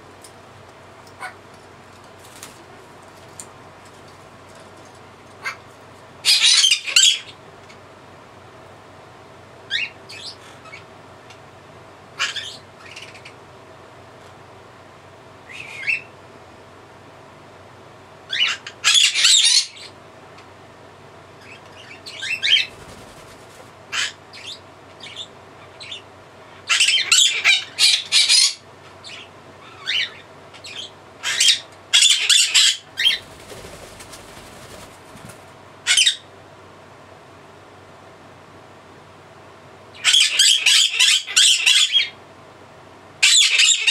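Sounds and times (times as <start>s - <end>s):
parrot shrieking: 35.8s - 36.2s, 40.0s - 42.1s, 43.2s - 43.9s.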